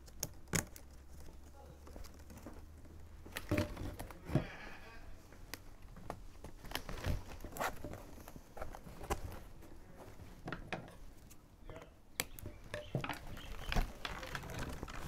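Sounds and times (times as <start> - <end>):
plastic straps clicking: 0.0 - 4.3, 5.4 - 9.8, 10.4 - 15.0
strap rubbing through weave: 5.7 - 10.5, 13.2 - 15.0.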